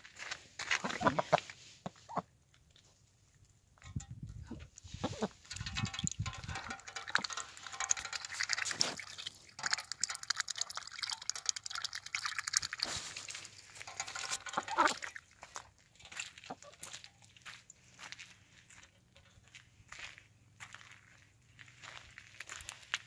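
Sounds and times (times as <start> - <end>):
duck splashing in water: 5.1 - 15.5.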